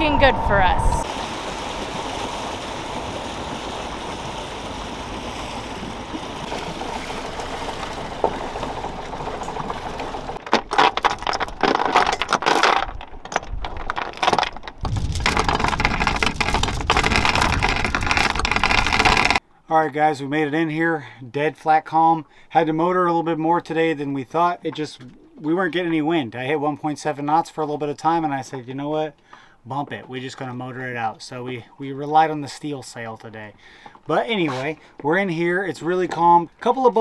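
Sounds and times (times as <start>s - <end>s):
boat engine: 0.0s - 19.4s
water noise: 0.0s - 19.4s
wind: 0.0s - 37.0s.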